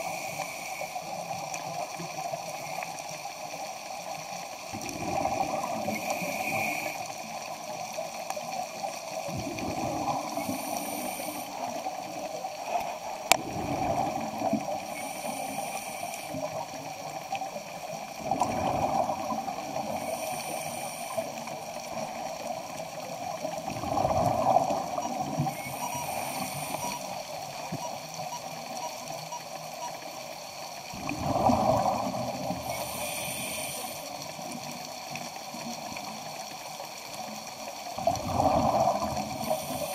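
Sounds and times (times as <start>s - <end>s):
diver breathing bubbles underwater: 4.7s - 7.5s, 9.2s - 11.9s, 13.3s - 16.7s, 18.2s - 22.2s, 23.6s - 27.2s, 30.9s - 34.4s, 38.0s - 39.9s.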